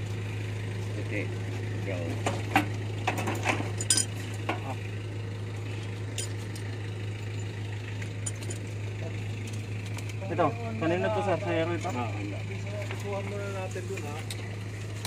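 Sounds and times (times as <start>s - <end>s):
steady low hum: 0.0s - 15.0s
tool clinking on metal: 3.1s - 4.7s, 6.1s - 6.6s, 8.2s - 8.7s.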